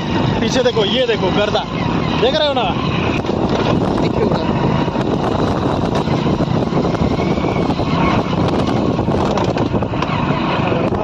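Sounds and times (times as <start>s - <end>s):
vehicle on dirt track: 0.0s - 11.0s
wind buffeting microphone: 0.0s - 11.0s.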